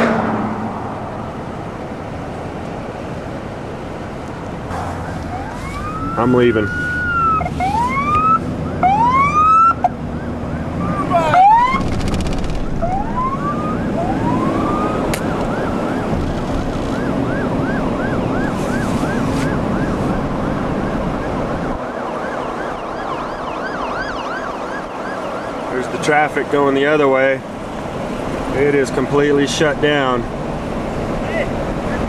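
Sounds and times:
road and traffic noise: 0.0 - 32.0
emergency vehicle sirens: 3.4 - 28.5.

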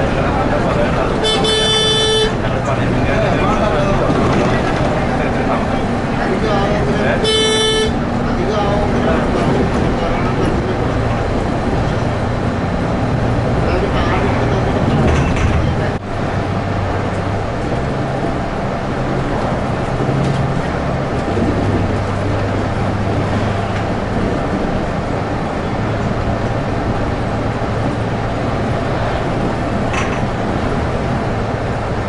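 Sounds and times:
diesel bus engine hum: 0.0 - 32.0
road and tyre noise: 0.0 - 32.0.

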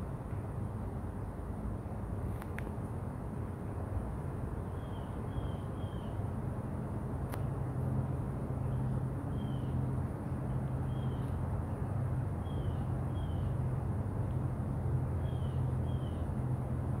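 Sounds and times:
bird chirping: 10.9 - 11.4, 12.4 - 13.6, 15.2 - 16.2.

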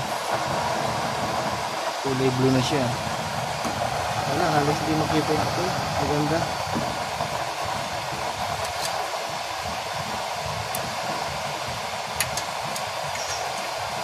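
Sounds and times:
blower fan rushing hiss: 0.0 - 14.0
metal rod clicking on burner: 12.2 - 13.6.

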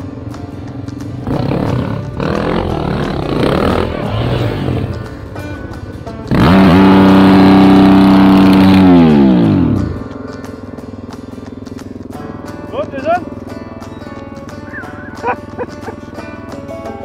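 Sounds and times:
off-road motorcycle engines: 0.0 - 17.0.

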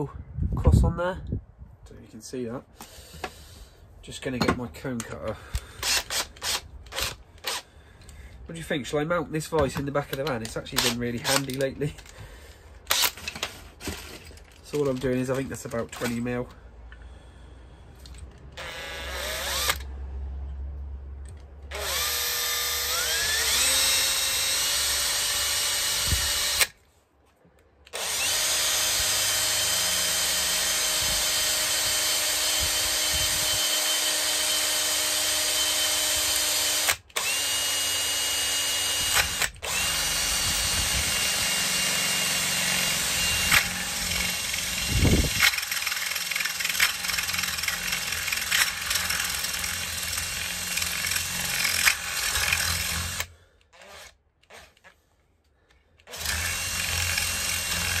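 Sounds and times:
power drill cutting metal plate: 18.6 - 19.9, 21.7 - 26.7, 28.0 - 54.8, 56.1 - 58.0.

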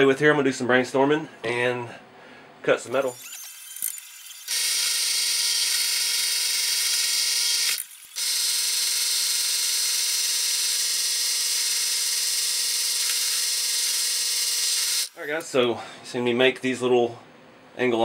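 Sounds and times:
drill press drilling metal: 3.0 - 15.2.

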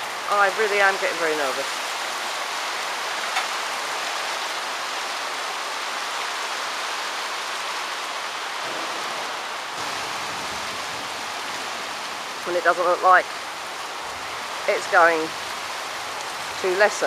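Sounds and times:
heavy rain pouring: 0.0 - 17.0.

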